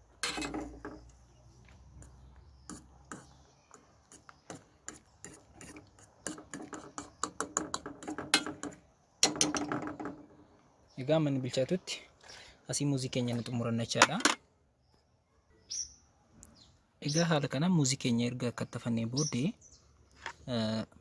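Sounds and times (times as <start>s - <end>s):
fork scraping metal saucepan: 0.2s - 0.8s, 4.9s - 8.5s.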